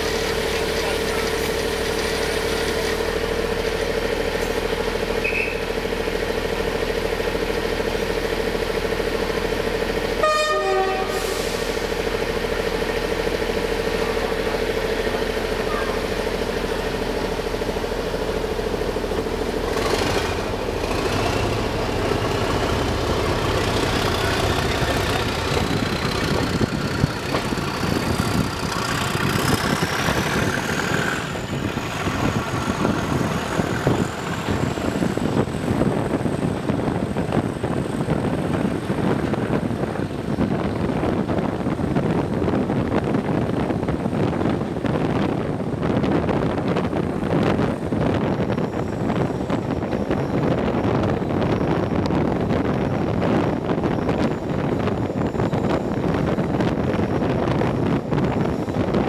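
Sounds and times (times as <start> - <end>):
diesel locomotive engine working: 0.0 - 59.0
wheel and rail running noise: 0.0 - 59.0
turbocharger whistle rising: 5.2 - 5.7.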